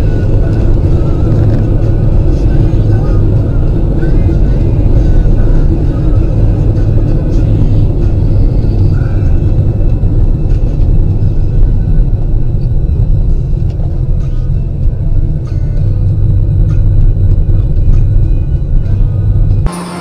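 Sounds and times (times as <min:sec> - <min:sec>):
car driving rumble: 0:00.0 - 0:20.0.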